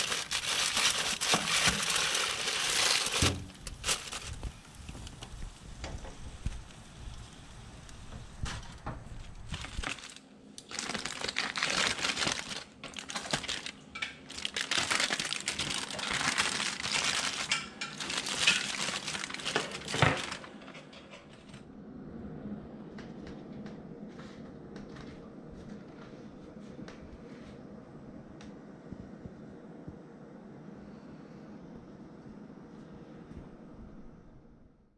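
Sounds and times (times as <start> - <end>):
aluminium foil crinkling: 0.0 - 5.4, 9.1 - 21.6
low rumble: 21.2 - 34.9.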